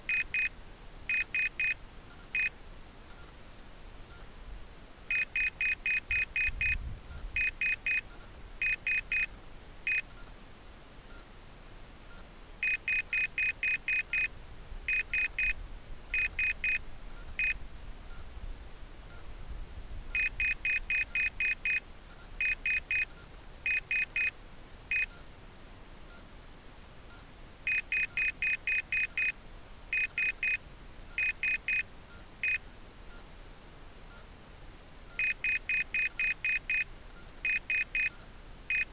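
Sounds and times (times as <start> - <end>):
faint wind rumble: 6.2 - 7.5, 16.8 - 20.4.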